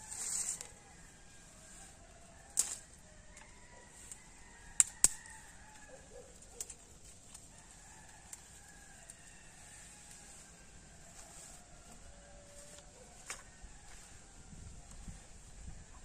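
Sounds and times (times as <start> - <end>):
dry twigs snapping: 2.5 - 3.5, 4.1 - 9.2.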